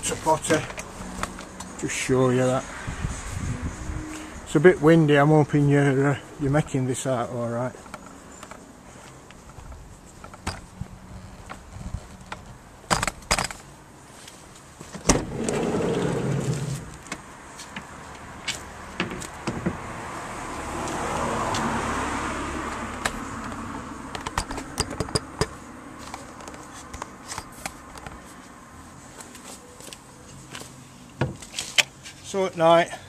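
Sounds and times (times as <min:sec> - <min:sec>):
wind on microphone: 0:02.8 - 0:04.5
small clicks and knocks: 0:07.8 - 0:10.7, 0:22.9 - 0:28.2
sliding van door clunk: 0:14.9 - 0:17.0
door rolling along runner: 0:15.0 - 0:17.0.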